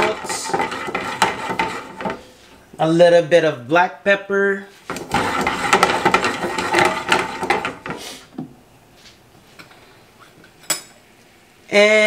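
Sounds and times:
sauce bubbling and sizzling: 0.0 - 2.8, 4.9 - 8.3.

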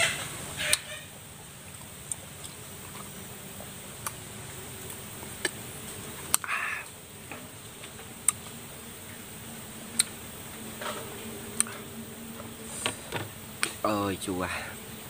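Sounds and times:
sucking hiss: 0.0 - 15.0
mouth clicks and smacks: 6.3 - 6.5, 8.2 - 8.6, 10.0 - 10.2.

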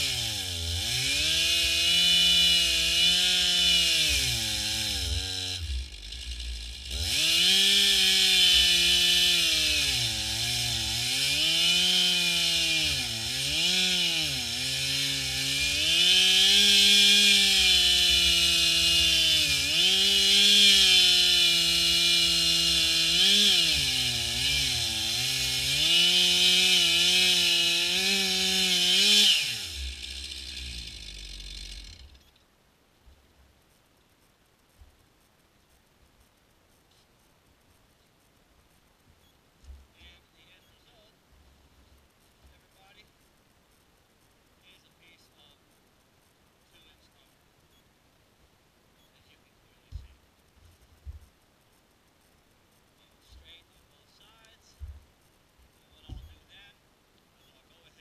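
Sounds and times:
chainsaw cutting log: 0.0 - 32.2.

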